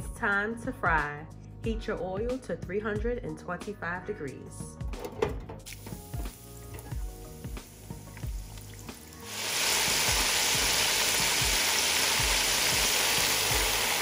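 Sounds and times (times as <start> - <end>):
background music with a beat: 0.0 - 9.2, 9.8 - 14.0
chicken wings deep-frying: 5.6 - 14.0.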